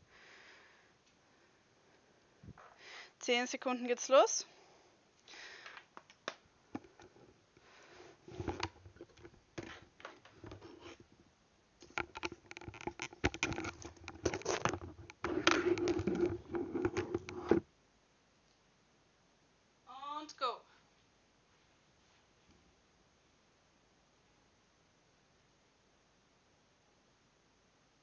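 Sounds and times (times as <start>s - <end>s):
handling noise on a desk: 5.6s - 11.2s, 11.8s - 17.7s.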